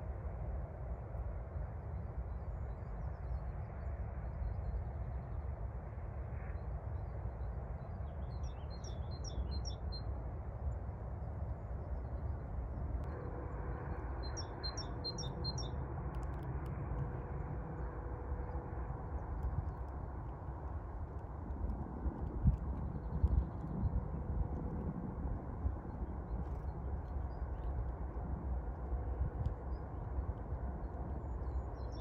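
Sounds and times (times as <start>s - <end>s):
steady low rumble: 0.0s - 32.0s
songbird singing: 8.0s - 10.1s, 13.9s - 16.3s, 31.2s - 32.0s
bird chirps: 14.2s - 15.8s.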